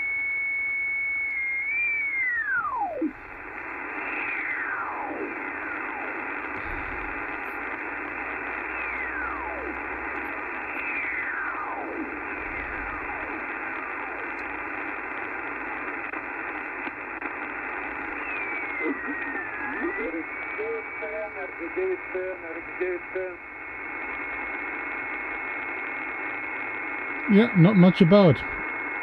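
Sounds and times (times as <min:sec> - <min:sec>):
radio static hiss: 0:01.6 - 0:29.0
whistling heterodyne tones: 0:17.8 - 0:20.0.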